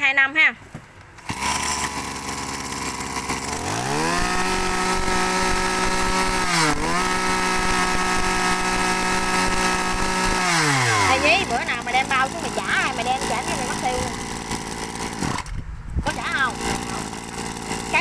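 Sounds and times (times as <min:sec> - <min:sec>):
brush cutter engine revving: 0:01.2 - 0:18.0.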